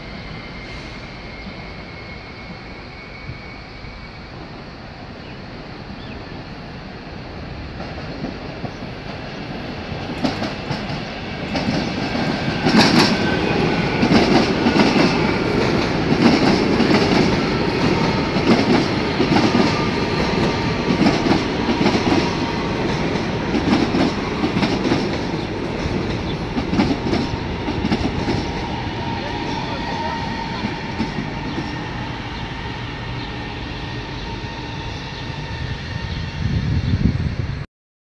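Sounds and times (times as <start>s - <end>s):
train rumbling on rails: 0.0s - 37.7s
train wheels clicking over rail joints: 9.9s - 29.7s.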